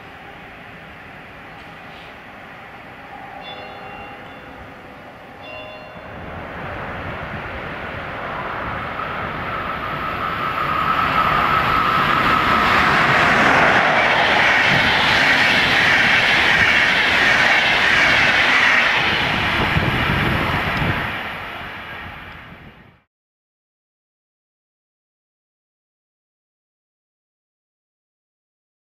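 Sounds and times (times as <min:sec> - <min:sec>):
steady whine: 0:00.0 - 0:22.6
electric train passing: 0:00.0 - 0:23.1
wheels running on rails: 0:03.1 - 0:22.7.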